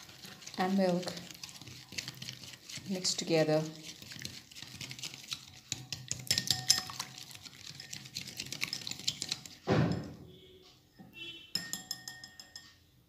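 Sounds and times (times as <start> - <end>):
whisk clicking against glass bowl: 0.0 - 9.6, 11.6 - 12.6
heavier knock: 9.7 - 10.3.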